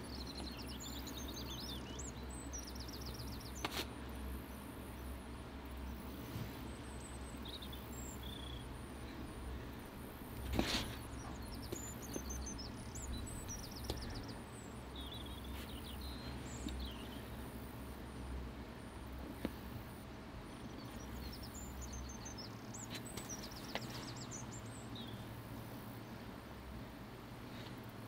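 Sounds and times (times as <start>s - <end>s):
small birds chirping: 0.0s - 26.8s
low wind rumble: 4.4s - 22.8s.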